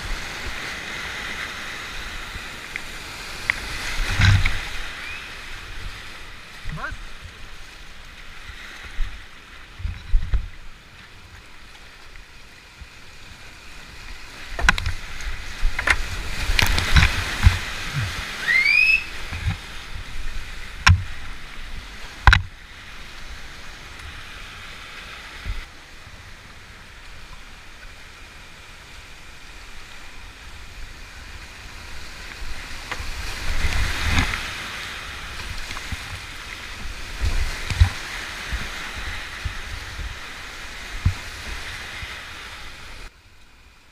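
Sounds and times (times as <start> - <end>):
water crashing over kayak bow: 0.0 - 10.6, 13.8 - 24.2, 31.2 - 43.1
whitewater rushing over rocks: 0.0 - 43.1
short rising whistle: 5.0 - 5.4, 18.4 - 19.2
kayak and paddle knocking: 14.4 - 18.3, 19.0 - 21.3, 22.2 - 22.5.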